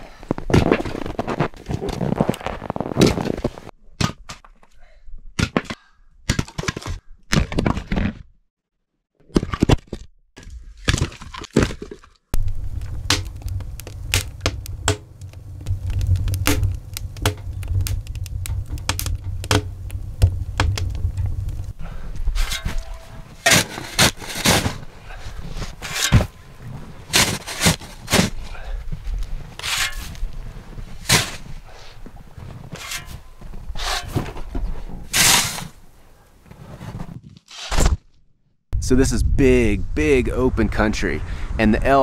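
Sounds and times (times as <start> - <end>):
axe splitting firewood: 10.9 - 24.9
low rumble: 12.4 - 23.4.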